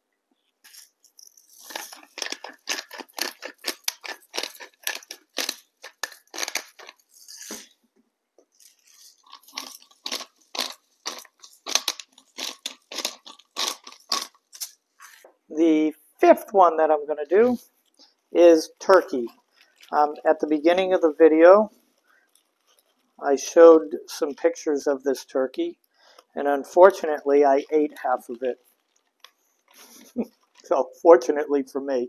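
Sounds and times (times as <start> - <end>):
spice grinder crunching clicks: 1.5 - 7.7, 8.6 - 14.8.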